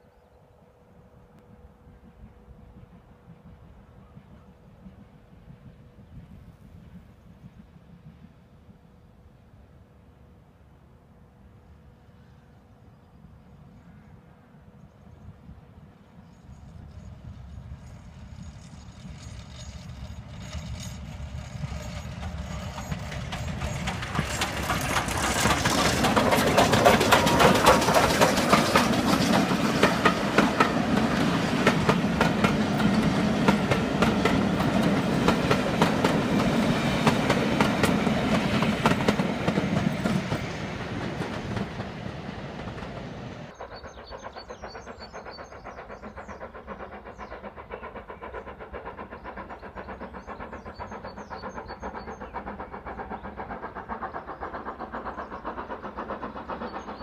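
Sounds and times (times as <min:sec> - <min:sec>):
train rumble: 0:00.6 - 0:57.0
train wheels clattering over rail joints: 0:19.7 - 0:57.0.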